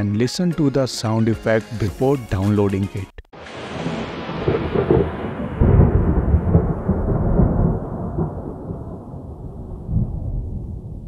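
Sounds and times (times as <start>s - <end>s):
rolling thunder: 3.4s - 11.0s.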